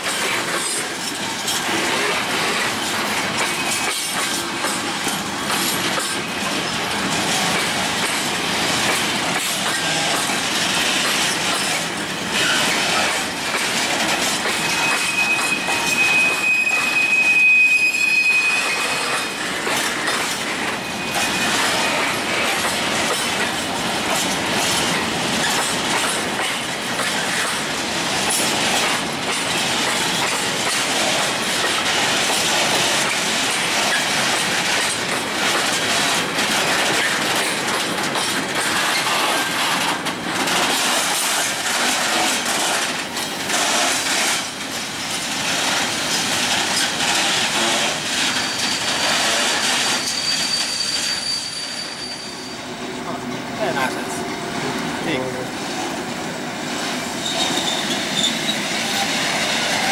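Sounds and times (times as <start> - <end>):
train wheels rumbling over rails: 0.0 - 59.9
high steady squeal: 14.6 - 19.4, 49.7 - 52.8.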